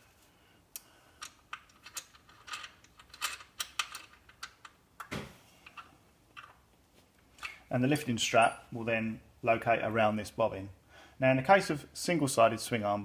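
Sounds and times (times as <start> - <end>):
metallic clicks and scrapes: 1.2 - 4.8.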